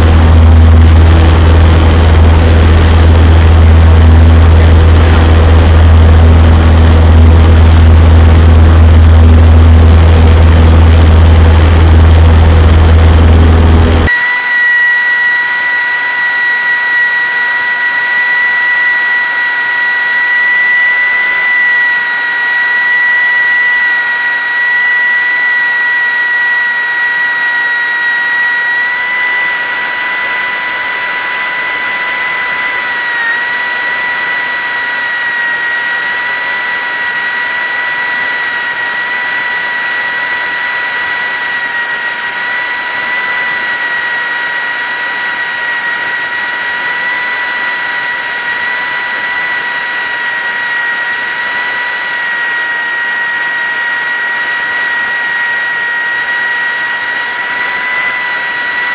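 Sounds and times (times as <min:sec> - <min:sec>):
light aircraft engine drone: 0:00.0 - 0:33.1
high steady whine: 0:00.0 - 0:58.9.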